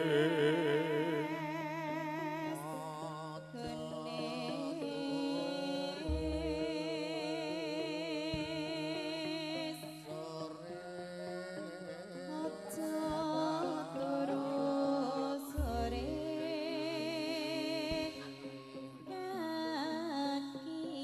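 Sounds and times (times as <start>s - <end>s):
gamelan ensemble music: 0.0s - 9.4s, 10.0s - 17.3s
woman singing with vibrato: 0.0s - 21.0s
deep drum or gong stroke: 6.1s - 6.7s.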